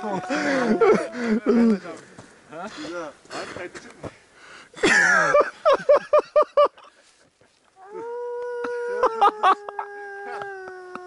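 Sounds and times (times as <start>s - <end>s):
person howling like a wolf: 0.0s - 1.6s, 7.8s - 11.0s.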